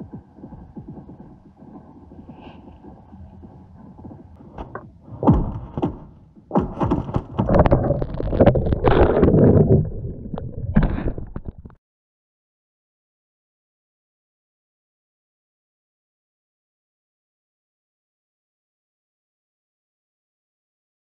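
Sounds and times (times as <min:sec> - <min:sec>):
rumbling noise: 0:00.0 - 0:11.8
loud irregular knocks and thumps: 0:04.1 - 0:11.8.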